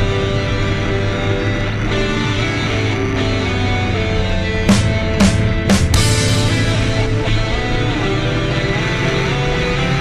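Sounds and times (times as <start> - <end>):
rock music with electric guitar: 0.0 - 10.0
drum hit: 4.7 - 7.6.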